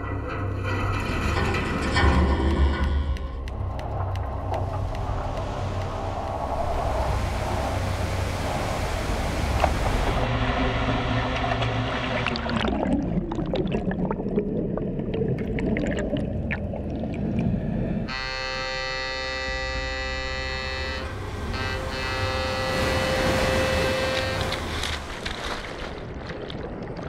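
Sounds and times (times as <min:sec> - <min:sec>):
underwater churning and crackling: 0:00.0 - 0:18.1, 0:21.4 - 0:27.0
seawater rushing: 0:03.4 - 0:13.4, 0:18.8 - 0:27.0
droning chord: 0:18.1 - 0:25.2.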